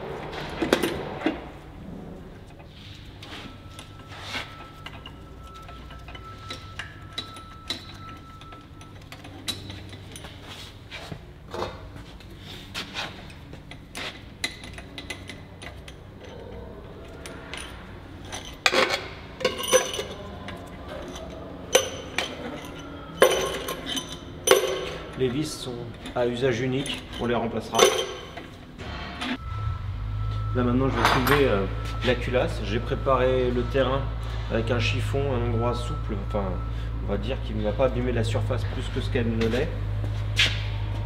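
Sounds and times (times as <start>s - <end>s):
metallic clicks and clinks: 3.6s - 10.5s, 13.3s - 28.6s.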